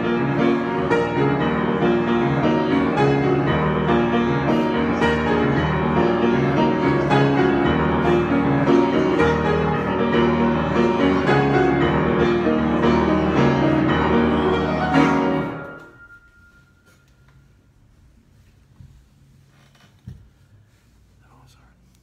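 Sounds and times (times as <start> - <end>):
solo grand piano: 0.0 - 17.5.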